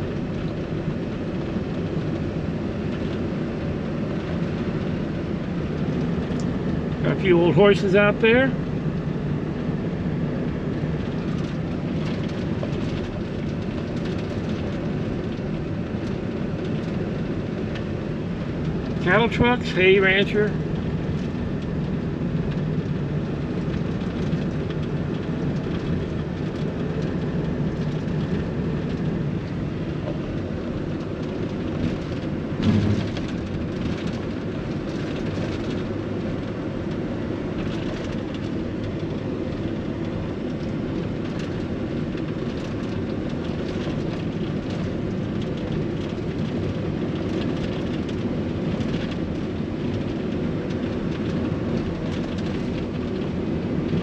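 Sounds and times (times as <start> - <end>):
road and engine noise: 0.0 - 54.0
brief thump: 32.6 - 33.2.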